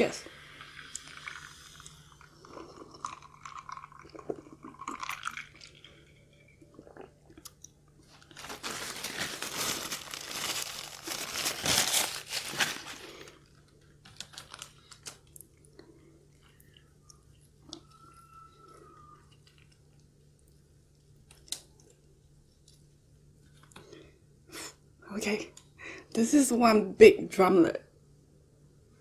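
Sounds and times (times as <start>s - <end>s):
sipping and swallowing: 0.6s - 7.8s
paper tissue rustling and crumpling: 8.1s - 15.3s.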